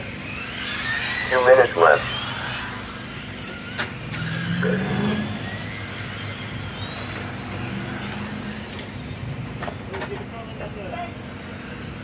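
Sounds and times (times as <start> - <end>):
rc car motors whining: 0.0 - 12.0.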